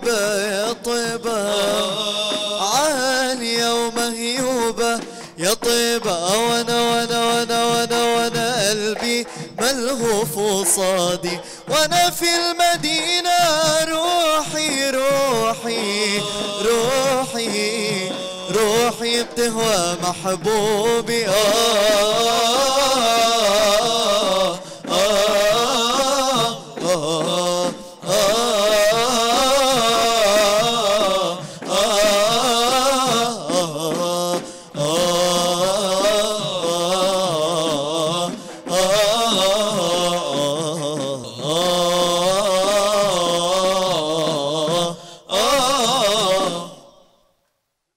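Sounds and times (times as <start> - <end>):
male group singing: 0.0 - 47.0.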